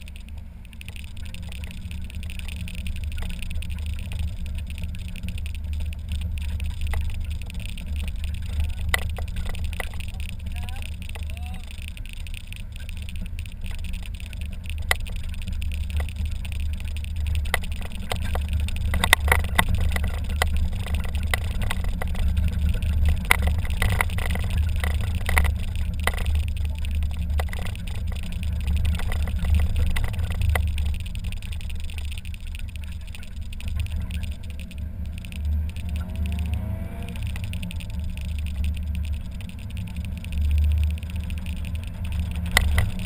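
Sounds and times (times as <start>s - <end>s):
car engine rumble: 0.0s - 43.0s
sharp clicks and knocks: 0.0s - 43.0s.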